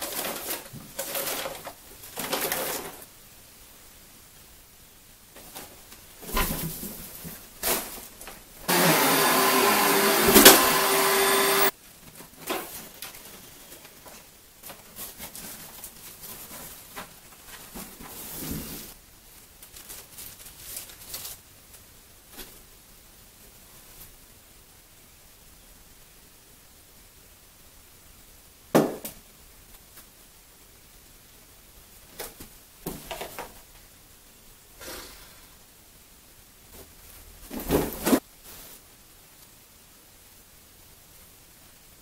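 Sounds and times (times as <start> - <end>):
clattering and rustling: 0.0 - 3.1, 5.4 - 8.5, 12.0 - 19.0
vacuum cleaner running: 8.7 - 11.7.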